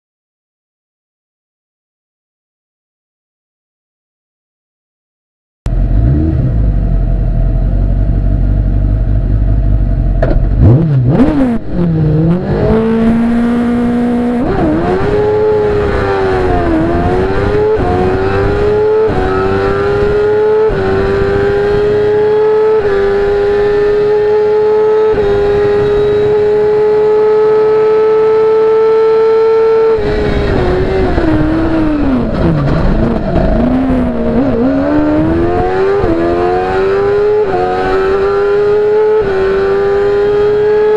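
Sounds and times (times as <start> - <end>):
race car engine revving: 5.7 - 6.9, 10.2 - 40.9.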